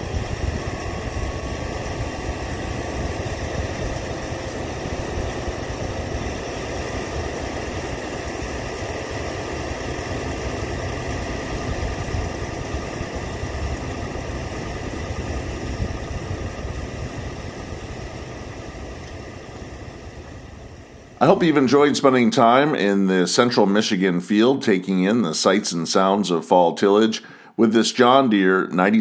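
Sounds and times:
disk blades working soil: 0:00.0 - 0:22.0
tractor diesel engine under load: 0:00.0 - 0:29.0.

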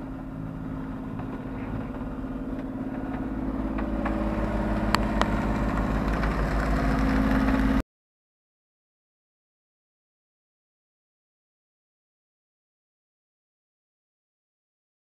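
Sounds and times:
boat engine humming: 0:00.0 - 0:07.8.

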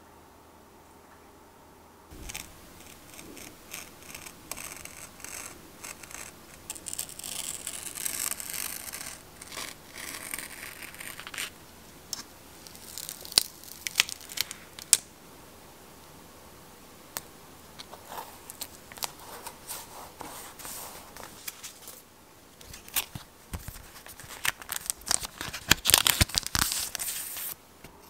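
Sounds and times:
knife scoring tape: 0:02.2 - 0:11.5
tape peeling clicks and crackles: 0:12.1 - 0:15.1, 0:22.6 - 0:27.5.

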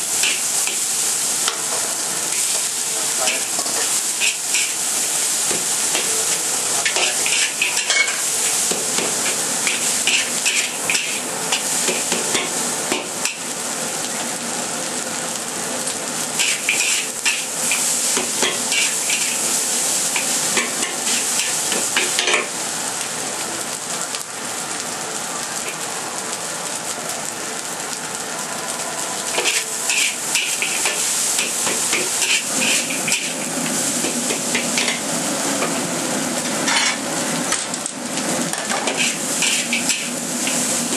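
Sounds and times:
rice sizzling in a wok: 0:00.0 - 0:40.9
metal spatula scraping a wok: 0:03.2 - 0:04.8, 0:06.8 - 0:08.3, 0:09.2 - 0:11.2, 0:16.4 - 0:19.4, 0:29.4 - 0:35.0, 0:36.6 - 0:37.0, 0:38.5 - 0:40.6.

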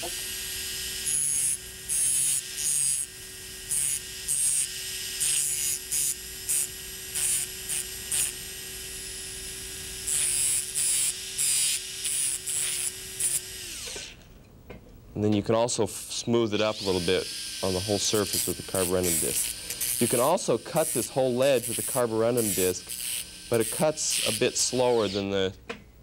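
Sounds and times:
high grinding bursts: 0:00.0 - 0:14.2, 0:15.9 - 0:25.4
dental handpiece spinning: 0:16.8 - 0:25.2.

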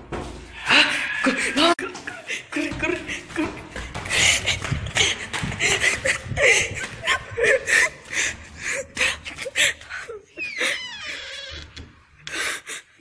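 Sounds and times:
people breathing hard: 0:00.4 - 0:10.7, 0:12.2 - 0:13.0
people giggling: 0:01.8 - 0:09.6.

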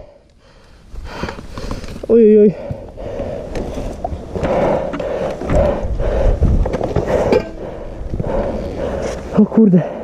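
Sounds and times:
person panting and grunting: 0:02.4 - 0:03.6, 0:04.4 - 0:10.0.

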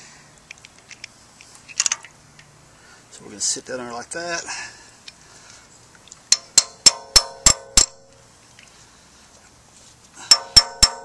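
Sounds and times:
hammer striking metal socket: 0:06.3 - 0:08.2, 0:10.3 - 0:11.0.

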